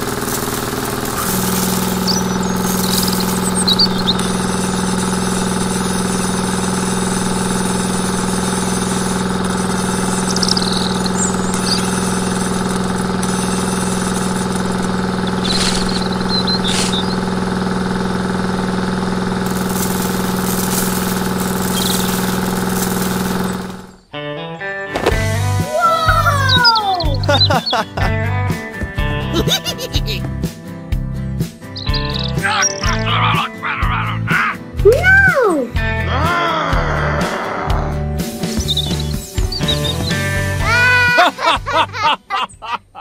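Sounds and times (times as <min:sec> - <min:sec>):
grain clicking: 0:00.0 - 0:04.2, 0:19.4 - 0:23.8
small electric motor humming: 0:00.0 - 0:24.0.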